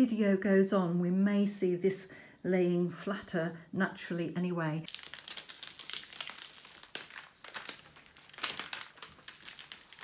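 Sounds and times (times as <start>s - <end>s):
plastic film peeling and crackling: 4.9s - 10.0s.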